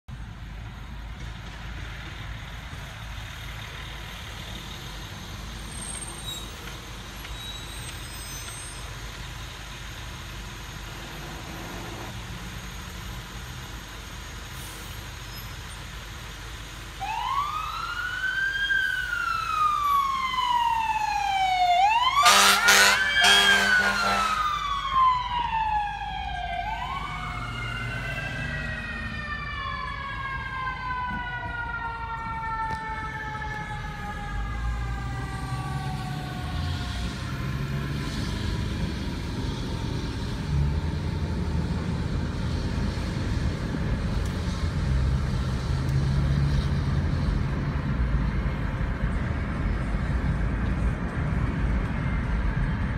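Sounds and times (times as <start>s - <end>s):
low road rumble: 0.1s - 52.9s
fire engine siren wailing: 2.0s - 52.9s
air horn blasts: 22.2s - 24.5s.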